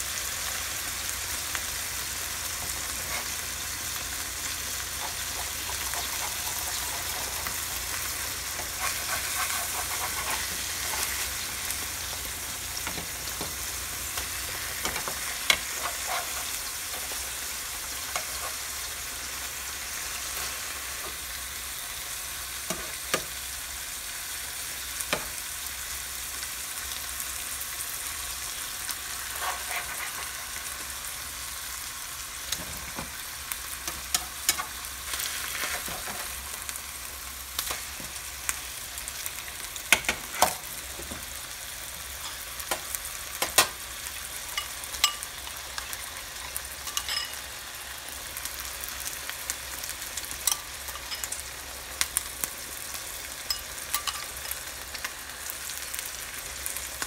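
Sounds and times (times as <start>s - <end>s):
fish sizzling in oil: 0.0s - 57.0s
spatula scraping a pan: 2.6s - 3.6s, 4.8s - 11.8s, 14.2s - 17.2s, 29.0s - 30.7s, 33.9s - 36.4s.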